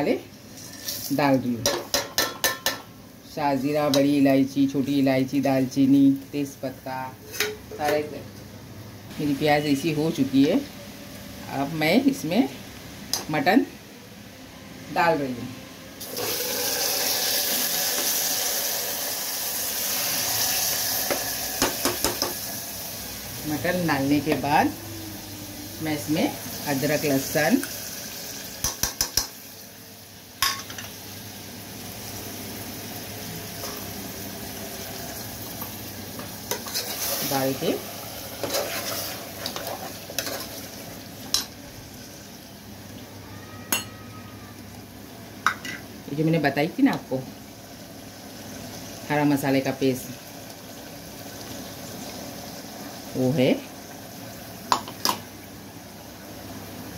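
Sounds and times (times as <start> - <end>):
spoon knocking against pot: 1.6 - 2.9, 28.6 - 29.3
meat sizzling in hot oil: 16.0 - 24.8, 25.5 - 42.9, 47.2 - 56.9.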